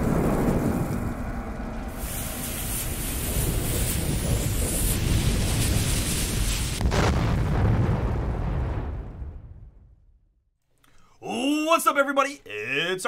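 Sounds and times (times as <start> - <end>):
burning fuse hiss: 0.0 - 7.6
low rumble: 0.0 - 10.5.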